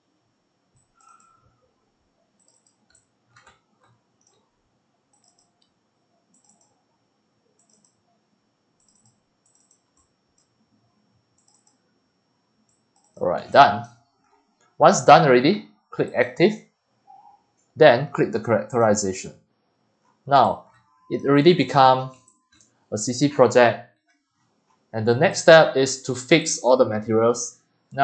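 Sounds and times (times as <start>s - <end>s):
computer mouse clicks: 0.8s - 1.6s, 2.4s - 4.5s, 5.1s - 6.8s, 7.6s - 8.1s, 8.8s - 10.6s, 11.4s - 11.8s, 12.7s - 13.2s, 22.1s - 22.8s.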